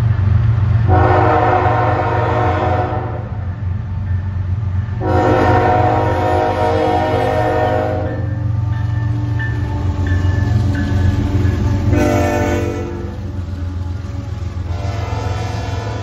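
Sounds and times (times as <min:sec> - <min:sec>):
diesel engine low rumble: 0:00.0 - 0:16.0
locomotive air horn blasts: 0:00.9 - 0:03.4, 0:05.0 - 0:08.4, 0:11.8 - 0:13.1, 0:14.6 - 0:16.0.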